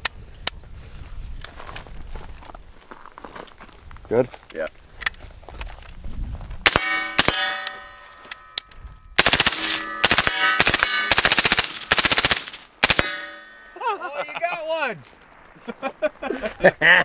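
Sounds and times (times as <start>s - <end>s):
rifle firing on full auto: 6.7s - 7.7s, 9.2s - 13.4s
metallic ringing: 6.7s - 11.9s, 12.9s - 14.2s.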